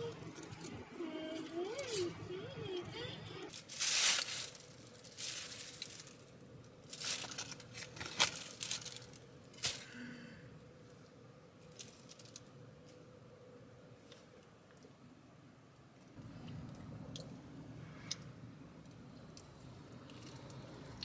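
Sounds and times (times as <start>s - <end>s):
aluminium foil crinkling: 3.5s - 9.9s, 11.7s - 12.5s
plastic bag rustling: 3.5s - 9.9s.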